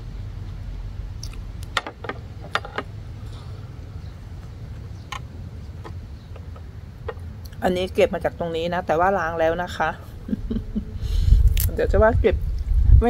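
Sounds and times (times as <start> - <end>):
steady low rumble: 0.0 - 13.0
chewing and mouth smacks: 1.2 - 1.4.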